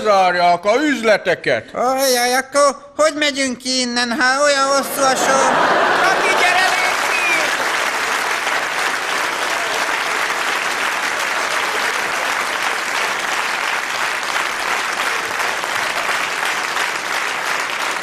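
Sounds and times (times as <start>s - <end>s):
audience applauding: 4.8s - 18.0s.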